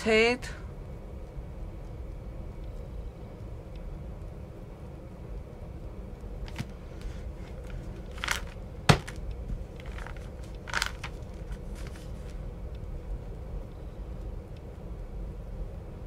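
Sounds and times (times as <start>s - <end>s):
steady low hum: 0.0s - 16.0s
hands kneading clay: 6.5s - 12.4s.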